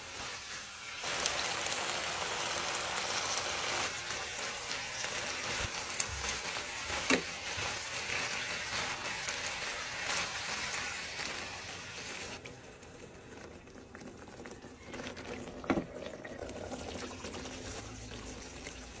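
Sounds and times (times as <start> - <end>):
food sizzling in a frying pan: 0.0 - 13.6, 14.3 - 19.0
liquid simmering and bubbling: 4.0 - 19.0.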